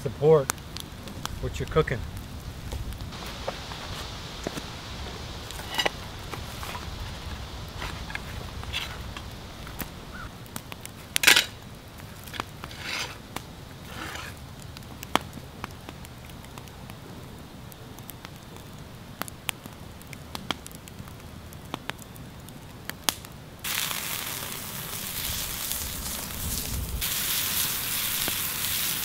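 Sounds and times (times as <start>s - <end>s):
campfire crackling and popping: 0.0s - 29.0s
rustling scrapes: 5.4s - 9.9s, 11.2s - 13.2s, 13.8s - 14.4s
burger sizzling in a pan: 23.6s - 29.0s.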